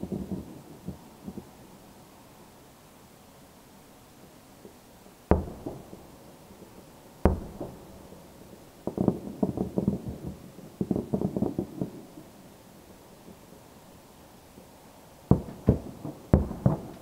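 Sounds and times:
distant fireworks bursting: 0.0s - 1.6s, 4.6s - 13.8s, 14.5s - 17.0s.

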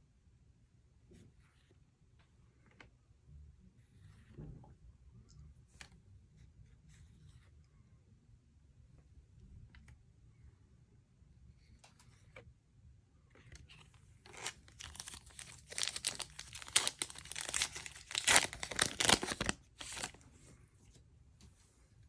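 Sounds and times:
plastic wrapper crackling and tearing: 13.6s - 20.2s.

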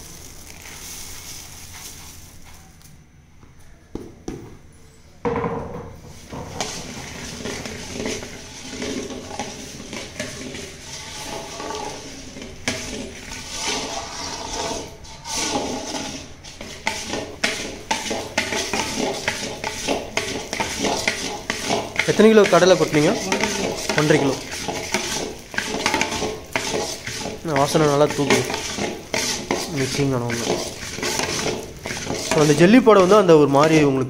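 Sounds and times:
ladle scraping metal pan: 6.1s - 33.9s
wet churning of syrup: 6.3s - 33.4s.

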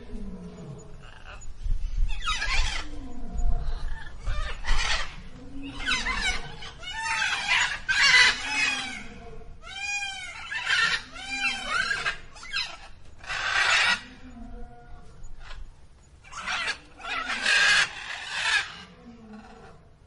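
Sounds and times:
peafowl calling harshly: 4.0s - 14.0s, 16.3s - 18.9s.

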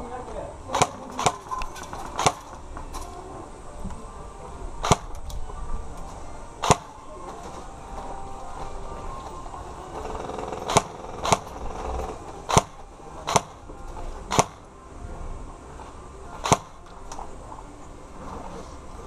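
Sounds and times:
airsoft gun shots: 0.7s - 2.6s, 4.8s - 5.2s, 6.6s - 7.0s, 10.6s - 11.6s, 12.5s - 13.6s, 14.3s - 14.7s, 16.4s - 16.8s.

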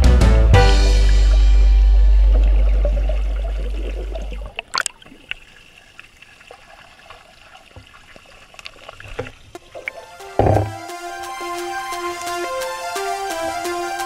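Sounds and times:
background music deep bass: 0.0s - 4.5s, 9.9s - 14.0s
faint trickling water: 2.2s - 10.8s.

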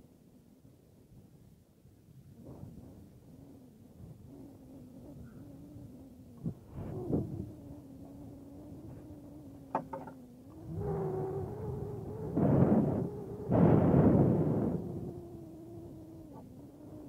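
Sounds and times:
steady low hum: 0.0s - 17.0s
wind buffeting microphone: 2.2s - 17.0s.

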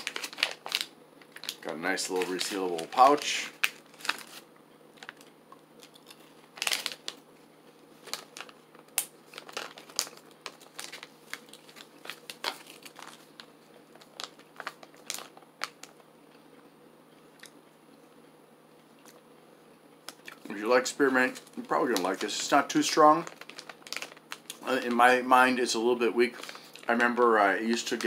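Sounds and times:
plastic pouch crinkling: 0.0s - 7.2s, 7.8s - 16.0s, 20.1s - 25.2s, 25.8s - 28.0s.

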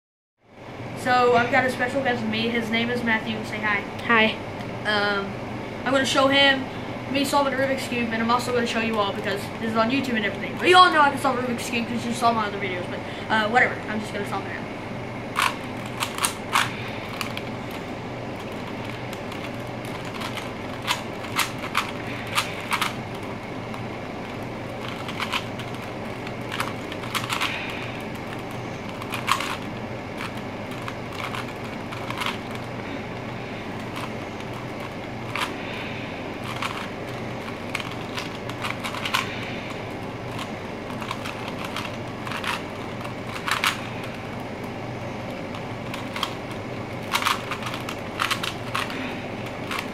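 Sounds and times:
steady background hum: 0.4s - 49.9s
puzzle cube plastic clicks: 15.4s - 32.8s, 33.7s - 35.6s, 36.4s - 49.9s.

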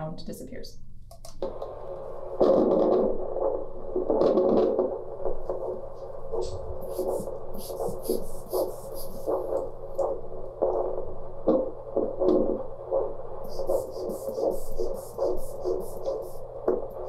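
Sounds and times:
doppler pulse whooshing beat: 2.2s - 17.0s.

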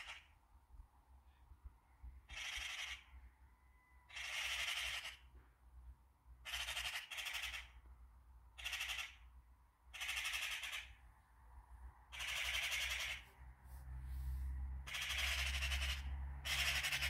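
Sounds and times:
magpies chattering: 2.3s - 3.1s, 4.1s - 5.3s, 6.4s - 7.8s, 8.6s - 9.2s, 9.9s - 11.0s, 12.1s - 13.3s, 14.9s - 17.0s.

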